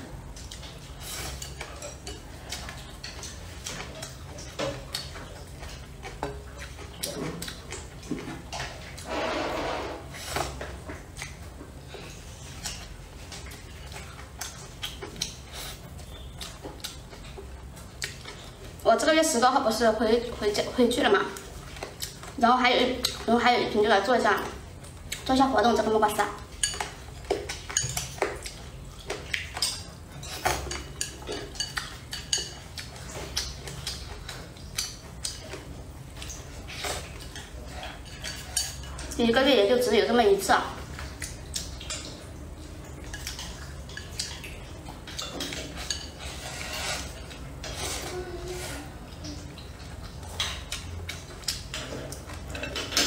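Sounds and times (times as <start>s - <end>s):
person chewing: 0.3s - 9.1s, 9.7s - 18.8s, 21.4s - 22.4s, 26.6s - 38.9s, 40.9s - 53.0s
chopsticks clicking against bowl: 30.7s - 35.6s.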